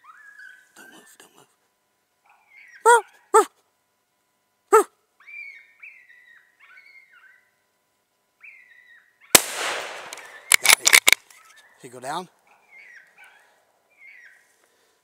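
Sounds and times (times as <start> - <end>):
rifle shot with echo: 9.4 - 11.2
sharp clicks: 9.4 - 11.2.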